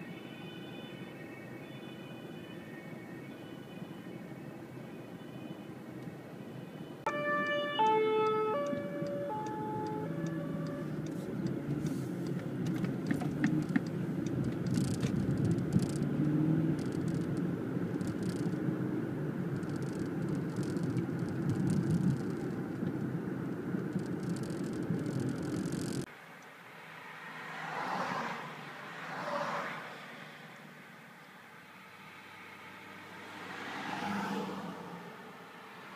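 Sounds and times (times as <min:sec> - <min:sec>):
two-tone siren: 0:00.0 - 0:05.8, 0:06.5 - 0:11.2
car and road noise: 0:00.0 - 0:35.9.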